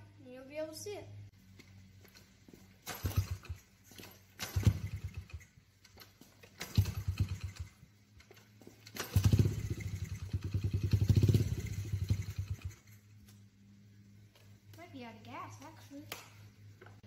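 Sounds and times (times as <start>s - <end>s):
motorcycle engine kick-started: 2.8s - 13.1s.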